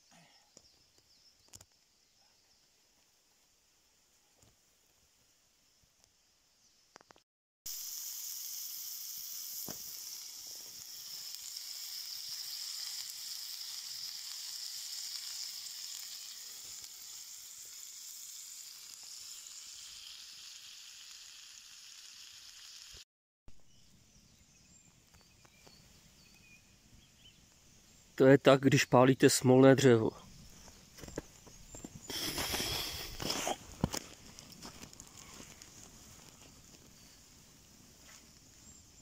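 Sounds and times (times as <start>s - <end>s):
shrimp sizzling in a pan: 7.7s - 23.0s, 32.1s - 37.2s.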